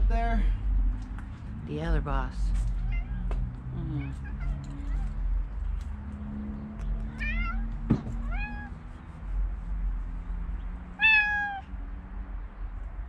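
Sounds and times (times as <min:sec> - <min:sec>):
cat meowing: 0:02.8 - 0:05.2, 0:07.1 - 0:08.8, 0:11.0 - 0:11.7.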